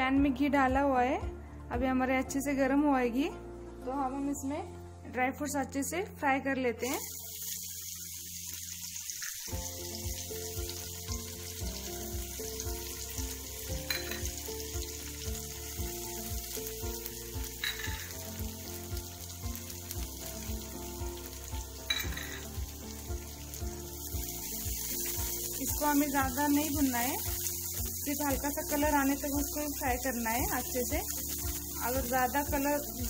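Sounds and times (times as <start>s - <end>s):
fruit sizzling in a frying pan: 6.8s - 33.0s.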